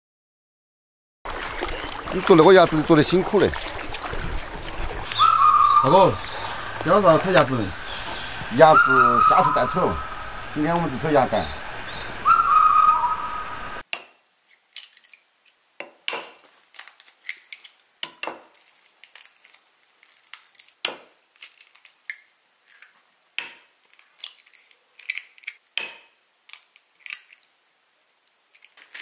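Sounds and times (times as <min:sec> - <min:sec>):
brief high-pitched call: 0:05.1 - 0:10.2, 0:10.8 - 0:13.8
eggshells cracking: 0:14.5 - 0:15.2, 0:16.5 - 0:25.6, 0:26.4 - 0:27.6.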